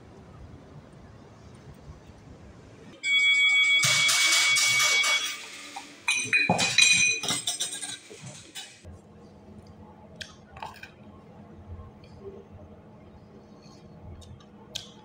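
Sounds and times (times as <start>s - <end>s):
two steady high tones: 3.0s - 6.4s
crockery clinking: 3.1s - 8.9s.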